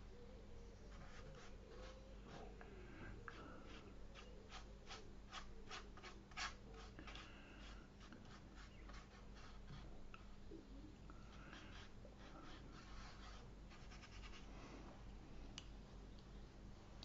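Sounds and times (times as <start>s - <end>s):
brush strokes on paper: 0.9s - 2.6s, 3.2s - 10.4s, 11.3s - 14.8s.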